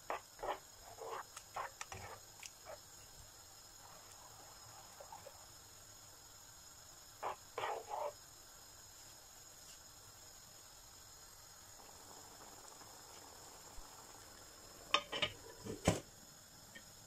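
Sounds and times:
sauce simmering in a pan: 0:00.0 - 0:15.6.

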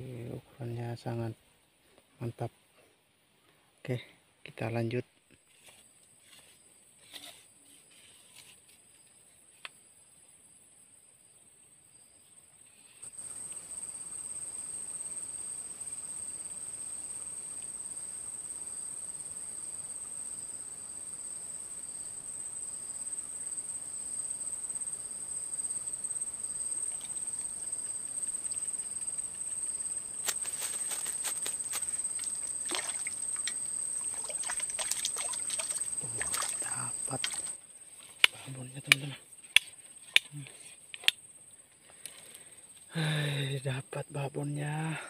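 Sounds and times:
high-pitched insect drone: 0:13.2 - 0:37.6
fish splashing in water: 0:32.0 - 0:37.6.

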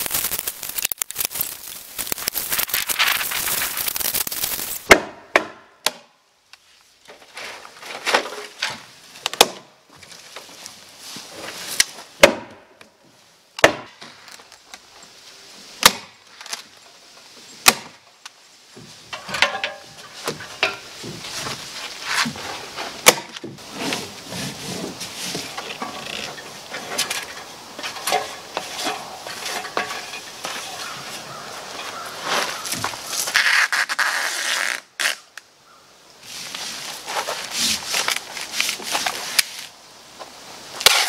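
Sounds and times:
rustling hiss: 0:00.0 - 0:04.9, 0:13.0 - 0:41.0
sharp strikes on wooden wall: 0:04.8 - 0:06.1, 0:09.4 - 0:09.7, 0:12.2 - 0:12.7, 0:13.6 - 0:14.0, 0:15.8 - 0:16.2, 0:17.6 - 0:18.0, 0:23.0 - 0:23.6.

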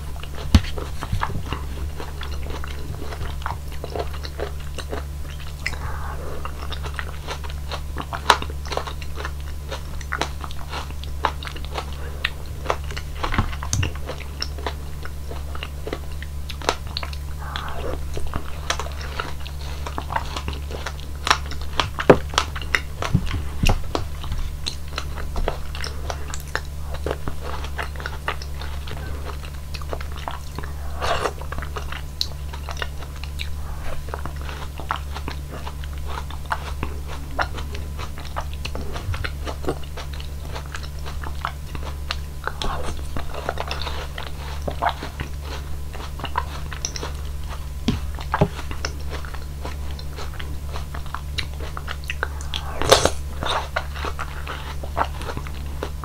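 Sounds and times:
chewing soft fruit: 0:00.0 - 0:56.0
steady low hum: 0:00.0 - 0:56.0
mouth clicks: 0:05.3 - 0:07.2, 0:51.4 - 0:53.6.

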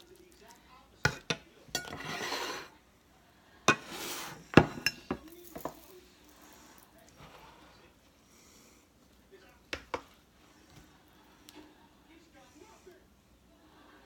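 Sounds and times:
metal spoon scraping a skillet: 0:01.0 - 0:02.8, 0:03.7 - 0:05.8
ceramic plate set down: 0:03.7 - 0:05.8.

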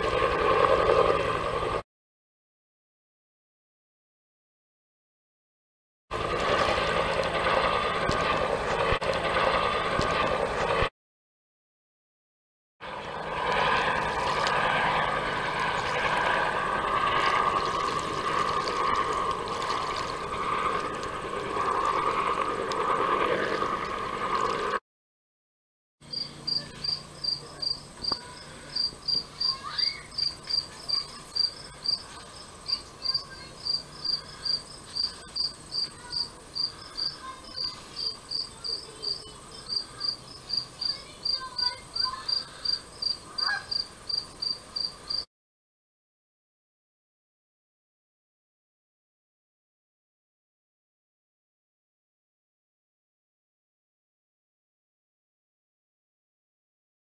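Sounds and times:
helicopter passing overhead: 0:00.0 - 0:01.8, 0:06.1 - 0:10.9, 0:12.8 - 0:24.8, 0:26.0 - 0:45.3
cricket chirping: 0:26.1 - 0:41.4, 0:42.3 - 0:45.2.

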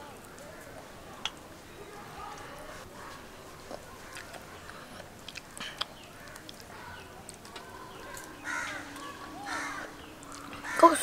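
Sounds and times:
faint scattered clicks: 0:04.0 - 0:09.2
crow cawing: 0:06.2 - 0:07.0, 0:08.1 - 0:11.0.

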